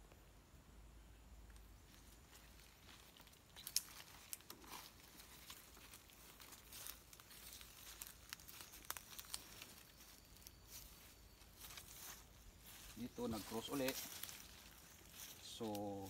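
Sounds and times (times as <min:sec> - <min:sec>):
rustling of dry leaves underfoot: 0:01.5 - 0:16.0
small twig snaps: 0:02.9 - 0:05.6.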